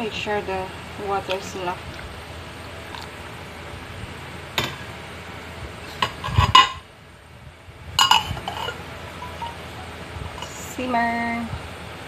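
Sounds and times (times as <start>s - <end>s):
pot lid clanking on pot rim: 8.0s - 9.6s.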